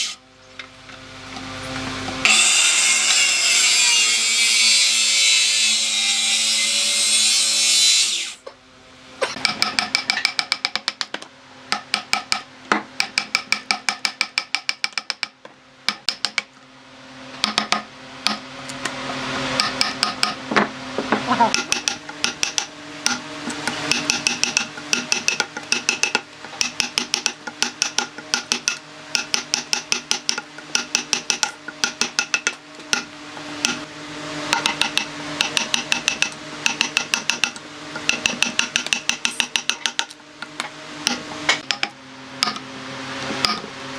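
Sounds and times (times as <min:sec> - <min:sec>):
circular saw cutting log: 0:00.0 - 0:00.2, 0:01.8 - 0:08.4
chisel taps ringing: 0:09.4 - 0:16.5, 0:23.9 - 0:33.8, 0:34.6 - 0:40.1, 0:41.1 - 0:42.6.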